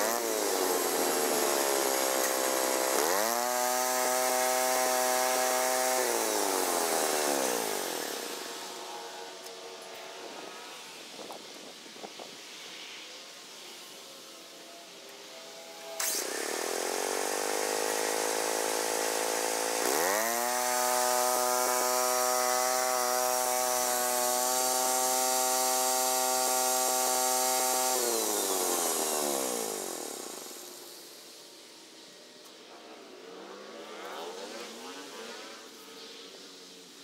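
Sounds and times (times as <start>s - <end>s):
garden tractor engine whining: 0.0s - 11.6s, 15.1s - 31.7s.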